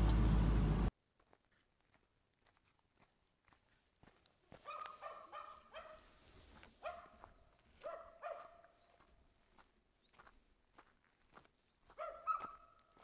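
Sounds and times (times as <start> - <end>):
faint dog barking: 4.6 - 6.2, 6.8 - 8.8, 11.9 - 12.8.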